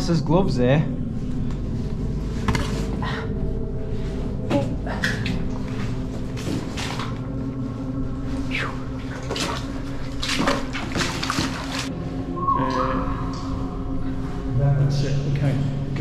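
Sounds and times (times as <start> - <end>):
boots splashing through shallow water: 9.1 - 11.9.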